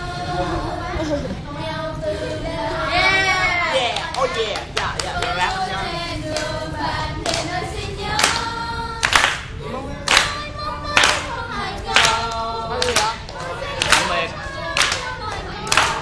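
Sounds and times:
group singing: 0:00.0 - 0:16.0
hand clapping: 0:04.0 - 0:05.4, 0:06.3 - 0:06.6, 0:07.2 - 0:07.5, 0:08.2 - 0:09.5, 0:10.1 - 0:11.3, 0:11.9 - 0:14.2, 0:14.8 - 0:16.0.

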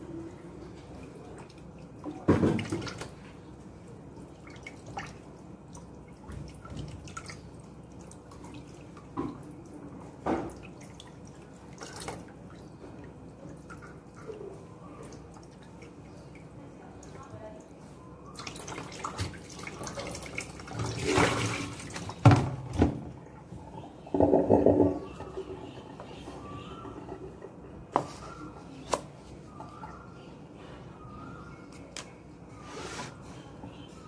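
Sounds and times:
water splashes: 0:13.4 - 0:23.0.

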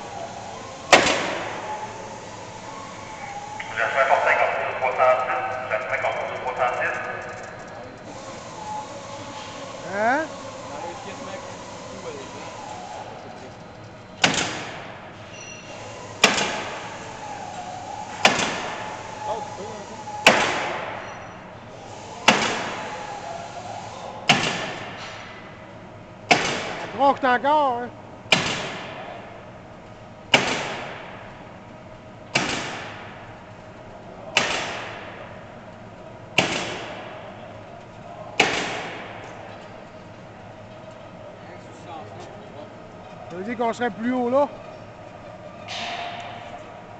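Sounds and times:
steady machine hum: 0:00.0 - 0:46.9
nail gun shots into wood: 0:14.2 - 0:14.8, 0:16.2 - 0:16.7, 0:18.2 - 0:18.8, 0:20.3 - 0:20.9, 0:22.3 - 0:22.8, 0:24.3 - 0:25.0, 0:26.3 - 0:26.8, 0:28.3 - 0:29.0, 0:30.3 - 0:31.2, 0:32.3 - 0:33.0, 0:34.4 - 0:35.1, 0:36.4 - 0:37.0, 0:38.4 - 0:39.2.

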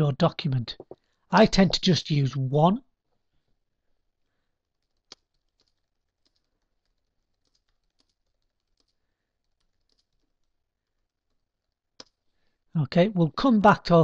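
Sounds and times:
typing on computer keyboard: 0:04.6 - 0:12.2.

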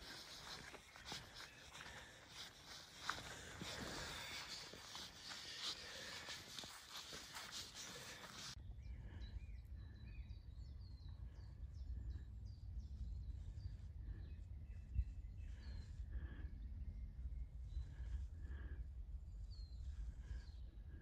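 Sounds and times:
rustling noise: 0:00.0 - 0:08.6
songbirds chirping and singing: 0:00.0 - 0:21.0.

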